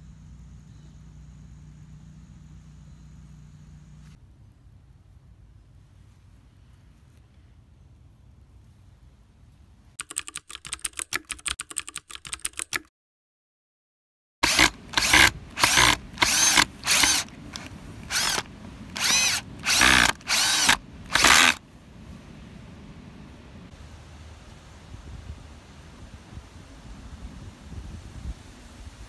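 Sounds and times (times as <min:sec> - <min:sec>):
drill motor bursts: 0:14.4 - 0:21.6
power drill clicking: 0:14.4 - 0:21.6.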